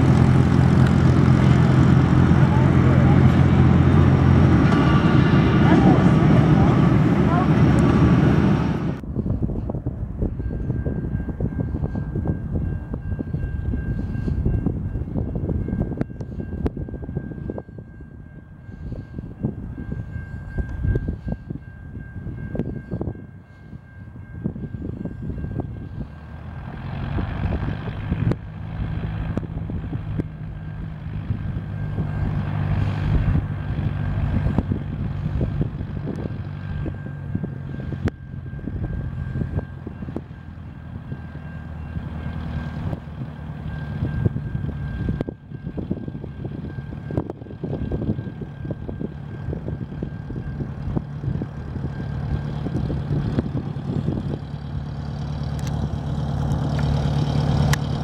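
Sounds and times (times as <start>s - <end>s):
light plane propeller engine: 0.0s - 10.2s, 25.1s - 58.0s.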